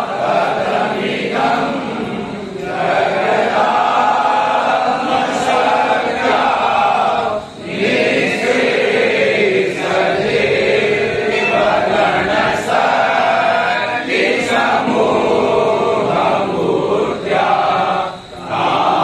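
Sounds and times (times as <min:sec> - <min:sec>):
men singing hymn in unison: 0:00.0 - 0:19.0.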